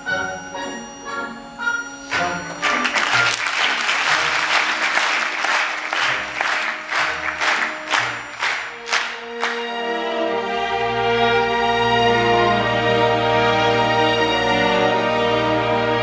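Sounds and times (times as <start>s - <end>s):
orchestra playing ballet music: 0.0s - 16.0s
audience applauding: 2.0s - 11.6s.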